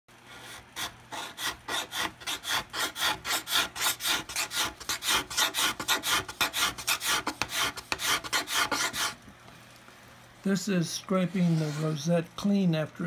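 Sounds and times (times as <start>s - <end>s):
hand scraper rasping on wood: 0.3s - 9.2s, 11.3s - 11.9s.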